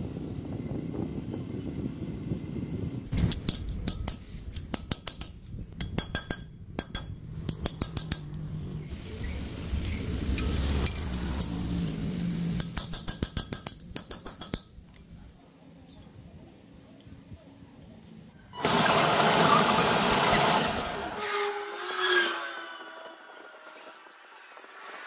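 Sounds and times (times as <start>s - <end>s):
low steady rumble: 0.0s - 14.0s
metal parts clinking: 9.8s - 15.1s.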